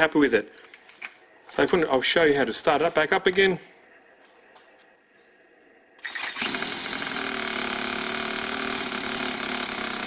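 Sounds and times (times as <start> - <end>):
model engine running: 6.0 - 10.0.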